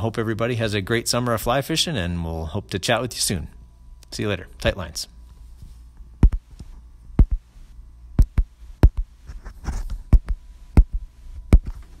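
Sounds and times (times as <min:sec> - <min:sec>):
faint steady hum: 0:00.0 - 0:12.0
deep sharp thumps: 0:06.2 - 0:06.5, 0:07.2 - 0:07.5, 0:08.2 - 0:09.1.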